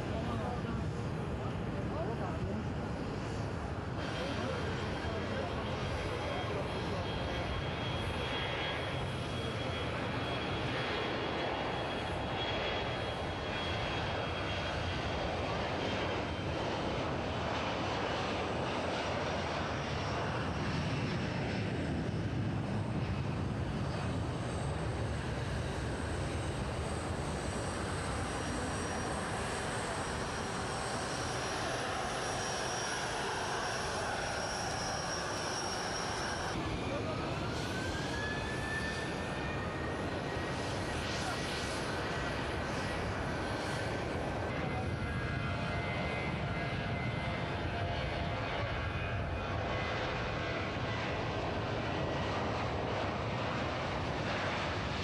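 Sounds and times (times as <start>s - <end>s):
high-pitched engine whine: 0.0s - 55.0s
jet engines roaring: 0.0s - 55.0s.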